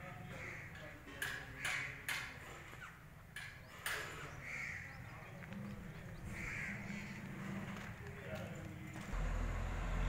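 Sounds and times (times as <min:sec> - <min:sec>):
bird calling: 0:00.3 - 0:07.8.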